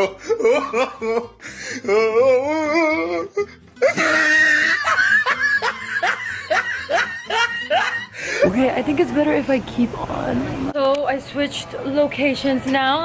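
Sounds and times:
woman laughing: 0.0s - 1.5s, 3.4s - 8.7s
woman wailing: 0.0s - 8.6s.

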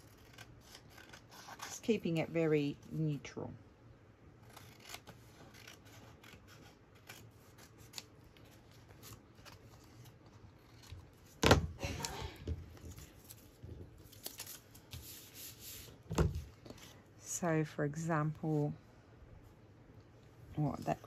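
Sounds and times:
paper handling: 4.6s - 17.0s.

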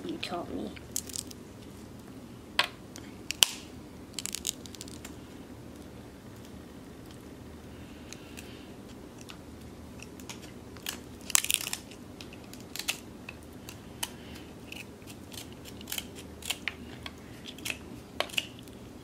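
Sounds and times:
crab shells cracking and crunching: 0.8s - 1.4s, 3.3s - 5.2s, 10.0s - 18.8s.

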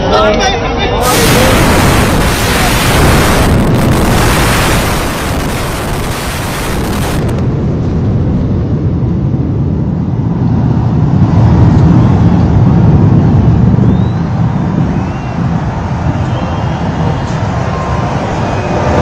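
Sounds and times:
hissing: 1.0s - 7.6s
building collapse rumble: 1.0s - 19.0s.

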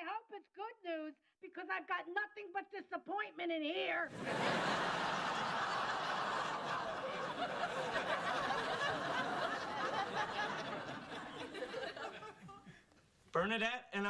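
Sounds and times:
audience laughing: 4.1s - 12.7s.

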